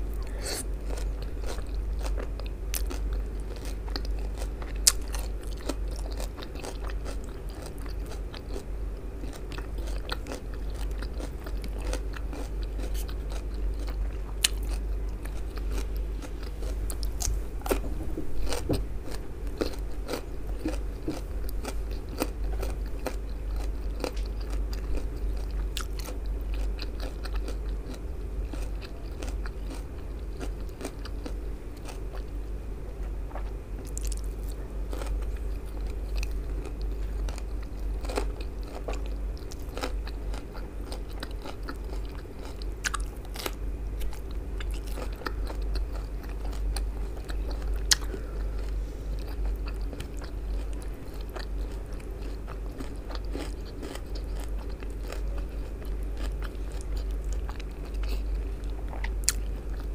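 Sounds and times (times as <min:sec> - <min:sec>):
steady low hum: 0:00.0 - 0:59.9
close-up chewing with mouth clicks: 0:00.1 - 0:32.4, 0:33.0 - 0:59.9.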